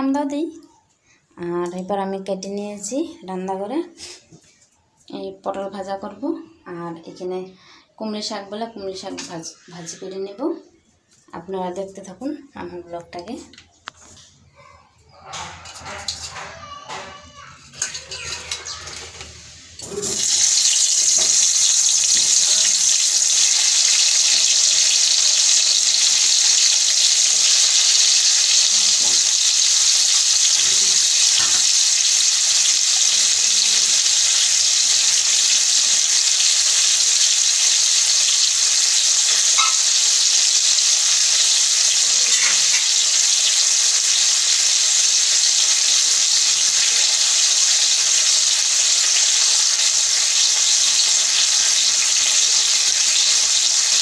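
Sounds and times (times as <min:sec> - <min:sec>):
vegetables sizzling in hot oil: 0:17.8 - 0:54.0.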